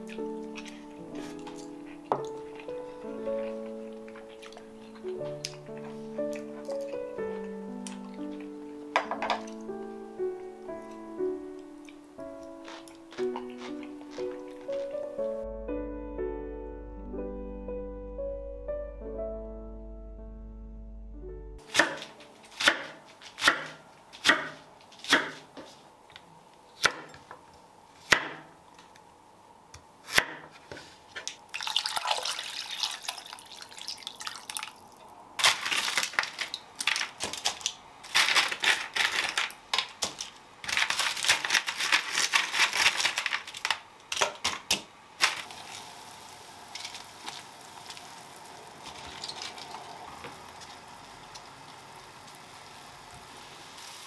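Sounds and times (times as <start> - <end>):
knife chopping on cutting board: 21.7 - 25.5, 28.1 - 28.5
running splashing water: 31.5 - 37.0, 45.2 - 53.8
pot hissing on stove: 45.3 - 54.0.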